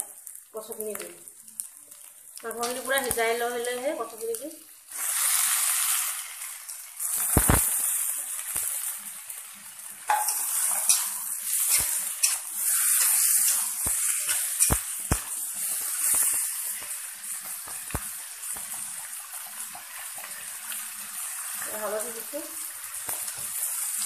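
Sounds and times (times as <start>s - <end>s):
chicken sizzling in oil: 0.0s - 24.0s
metal spatula scraping pan: 10.1s - 17.0s.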